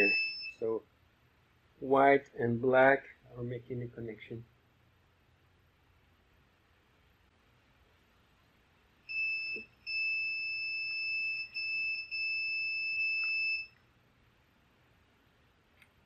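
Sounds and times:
multimeter beeping: 0.0 - 0.7, 9.1 - 13.8.

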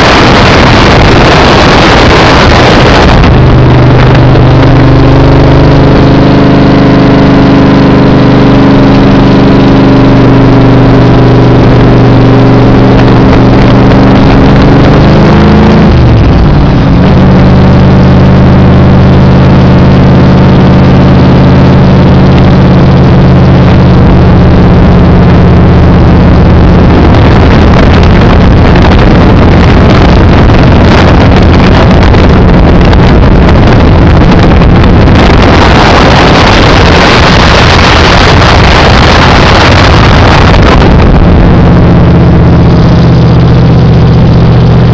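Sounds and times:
car engine running steadily: 0.0 - 44.9
wind noise: 0.0 - 44.9.

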